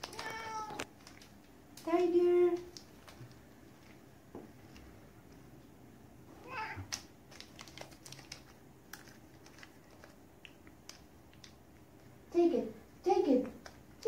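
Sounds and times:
cat meowing: 0:00.0 - 0:00.9, 0:06.4 - 0:06.9.

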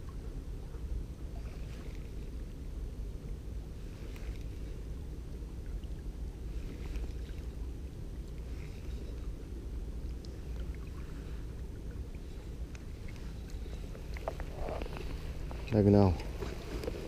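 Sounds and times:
faint light clicks: 0:10.0 - 0:10.8, 0:12.6 - 0:17.0.

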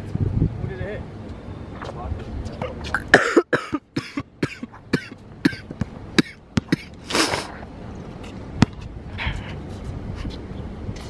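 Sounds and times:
person coughing: 0:03.1 - 0:05.6
basketball bouncing on hard court: 0:08.6 - 0:08.8.

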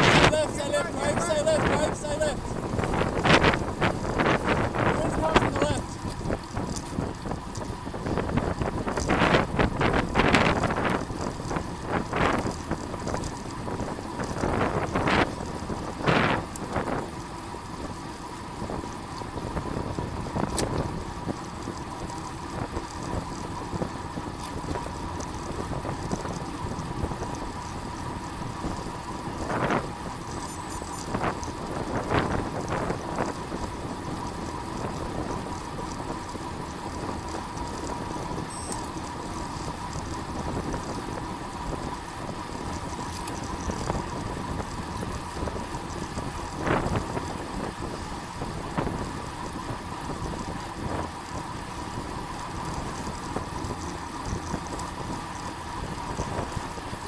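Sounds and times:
wind on microphone: 0:00.0 - 0:17.1, 0:43.2 - 0:51.1
bicycle road noise: 0:00.0 - 0:57.0
faint steady high tone: 0:30.3 - 0:31.1, 0:38.5 - 0:38.9.

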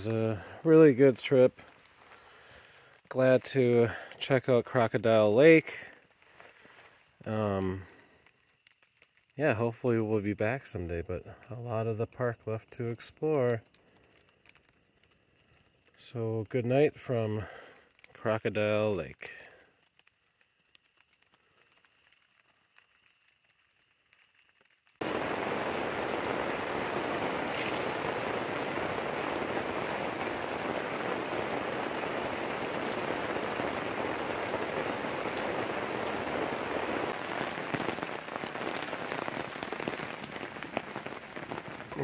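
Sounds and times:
heavy rain falling: 0:00.0 - 0:06.7, 0:25.0 - 0:42.0.

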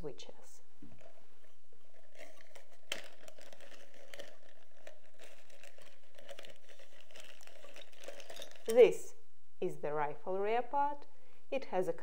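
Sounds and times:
plastic bag crinkling: 0:00.9 - 0:09.0.

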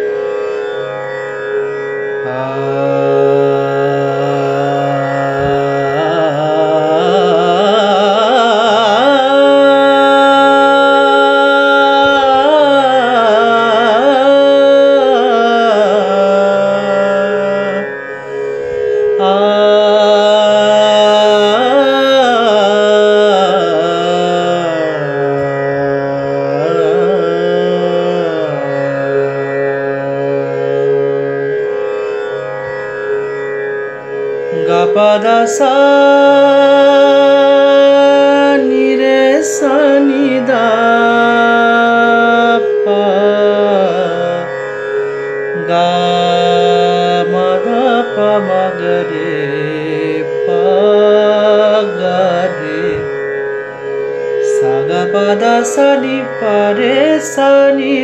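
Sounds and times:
steady held drone: 0:54.2 - 0:57.7.

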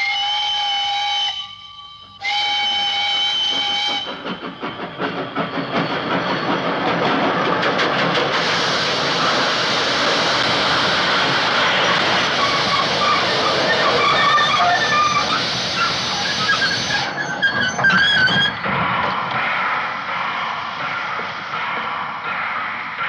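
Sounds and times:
steam locomotive whistle: 0:00.0 - 0:04.8, 0:11.9 - 0:18.6
steam hissing: 0:00.0 - 0:17.3, 0:18.0 - 0:23.0
locomotive chuffing: 0:00.0 - 0:23.0.

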